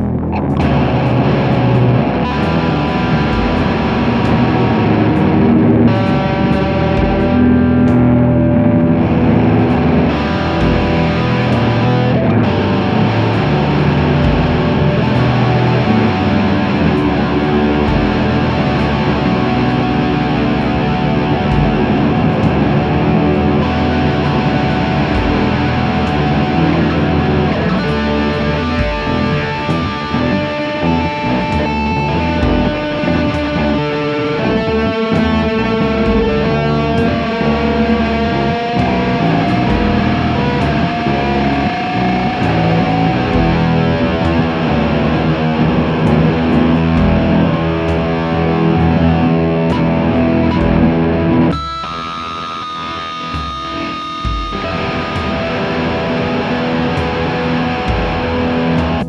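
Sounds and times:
fuzz electric guitar with reverb: 0.0s - 59.0s
low steady pulse: 0.0s - 59.0s.

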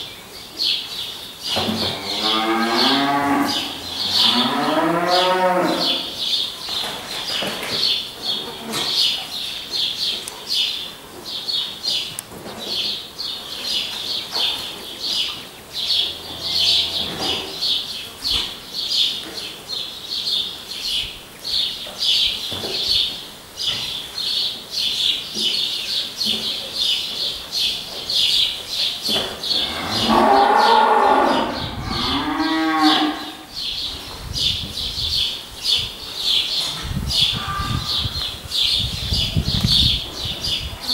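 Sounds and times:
drawn-out rising and falling animal call: 29.6s - 33.5s.

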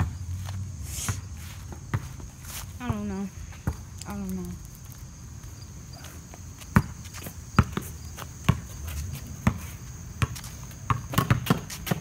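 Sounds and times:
high insect trill: 0.0s - 11.9s
sharp thuds on concrete: 10.2s - 12.0s.

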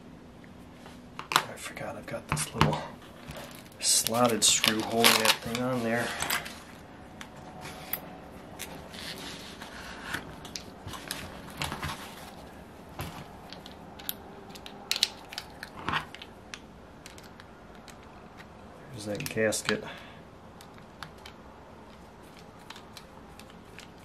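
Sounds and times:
small metal parts clicking: 13.5s - 18.5s.

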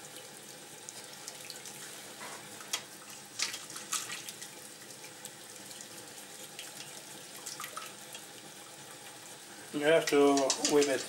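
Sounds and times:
whisk wires clicking on pot: 10.0s - 11.0s.

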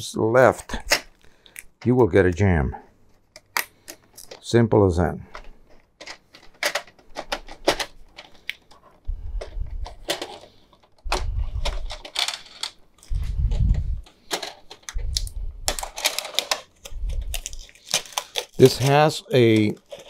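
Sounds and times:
plastic crinkling: 9.8s - 20.0s.

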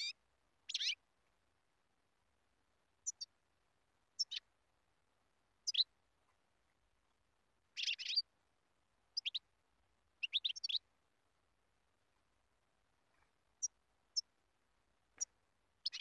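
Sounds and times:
finch calling: 0.0s - 1.0s, 4.2s - 4.4s, 5.6s - 5.9s, 7.8s - 8.2s, 9.2s - 9.4s, 10.2s - 10.8s, 15.2s - 16.0s.

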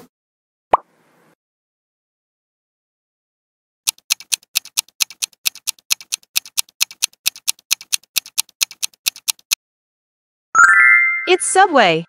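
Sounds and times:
clock-like tick-tock: 3.9s - 9.6s.

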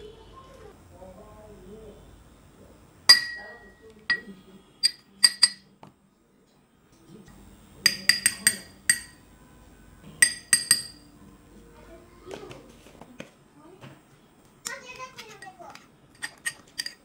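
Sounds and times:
steel spoon clinking on bowl: 3.1s - 5.7s, 7.8s - 9.2s, 10.2s - 11.1s, 16.2s - 17.0s.

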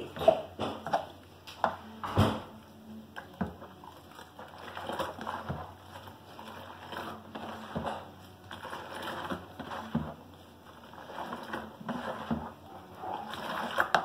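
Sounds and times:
liquid soap sloshing and splashing: 3.2s - 14.0s.

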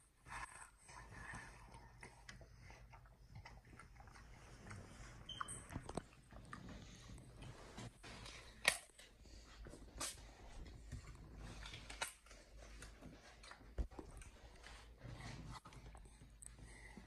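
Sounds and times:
chimpanzee chewing watermelon rind: 0.4s - 7.4s.

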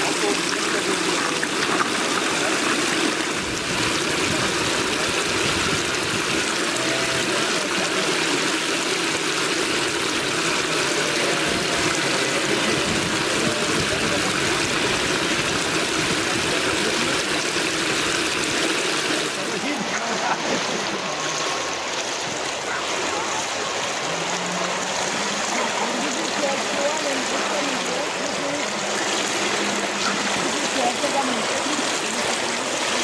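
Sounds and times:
running water rushing: 0.0s - 33.0s
faint distant voices: 19.0s - 33.0s.

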